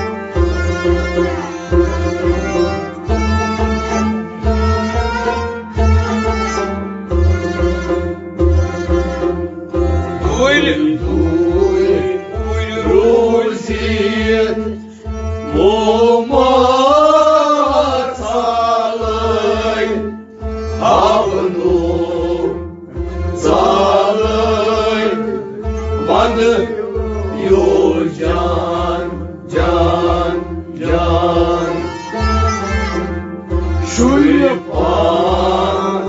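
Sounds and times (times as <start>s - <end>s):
harmonium: 0.0s - 36.0s
string instruments: 0.0s - 36.0s
man singing: 10.2s - 20.2s, 20.8s - 22.7s, 23.4s - 33.0s, 33.9s - 36.0s.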